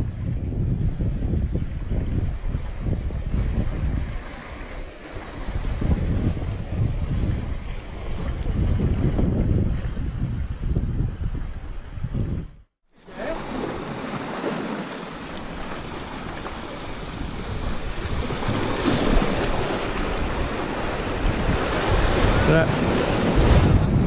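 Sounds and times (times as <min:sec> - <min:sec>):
wind rumbling on microphone: 0:00.0 - 0:24.0
sea waves washing over rocks: 0:13.0 - 0:24.0.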